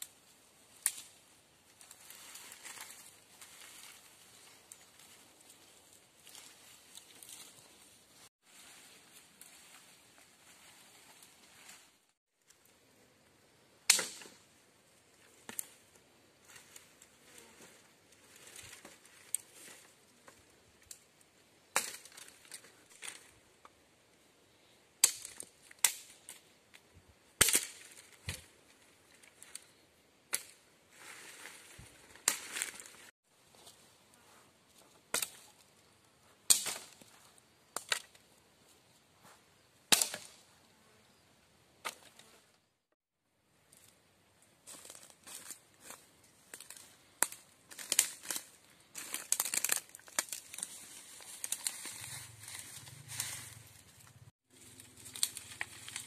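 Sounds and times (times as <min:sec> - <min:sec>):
rustling of dry leaves: 0:00.0 - 0:13.3, 0:13.9 - 0:23.6, 0:25.0 - 0:39.0, 0:43.6 - 0:56.0
sticks snapping: 0:00.8 - 0:01.2, 0:13.9 - 0:14.4, 0:21.8 - 0:23.3, 0:25.0 - 0:26.4, 0:30.3 - 0:30.6, 0:36.5 - 0:37.0, 0:39.9 - 0:40.4, 0:46.5 - 0:52.0, 0:55.0 - 0:56.0
twigs snapping underfoot: 0:00.8 - 0:01.2, 0:01.8 - 0:05.2, 0:13.9 - 0:14.4, 0:15.2 - 0:15.9, 0:21.7 - 0:23.8, 0:25.0 - 0:26.8, 0:27.4 - 0:28.5, 0:29.1 - 0:30.6, 0:31.4 - 0:33.1, 0:36.5 - 0:37.1, 0:37.7 - 0:38.2, 0:39.9 - 0:40.4, 0:44.7 - 0:53.6, 0:54.6 - 0:56.0.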